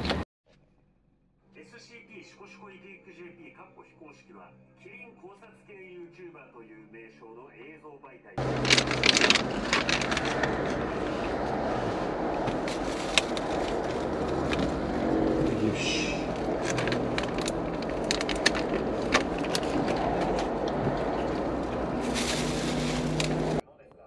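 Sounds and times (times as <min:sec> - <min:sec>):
plastic wrapper crinkling: 0:08.4 - 0:11.0, 0:12.6 - 0:15.0, 0:16.4 - 0:20.5, 0:21.2 - 0:23.6
low rumble inside car: 0:08.4 - 0:23.6.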